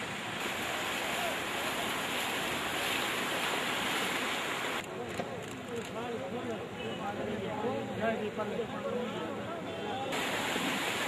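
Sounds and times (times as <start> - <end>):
floodwater rushing: 0.0 - 4.8, 10.1 - 11.0.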